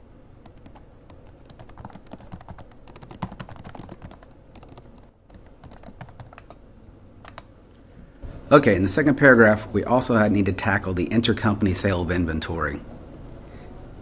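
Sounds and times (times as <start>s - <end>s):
computer keyboard key clicks: 7.2s - 7.5s.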